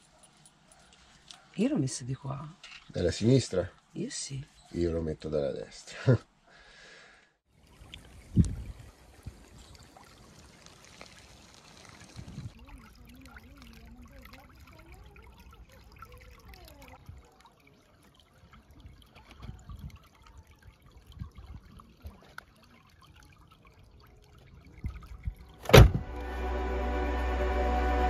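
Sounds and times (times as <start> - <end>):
stream water trickling: 7.5 - 26.4
sharp knock: 25.6 - 26.1
background music: 26.0 - 28.0.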